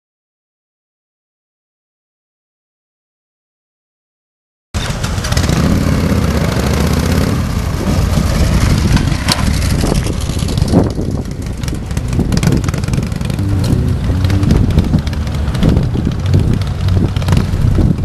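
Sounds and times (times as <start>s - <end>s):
motorcycle engines running: 4.8s - 18.0s.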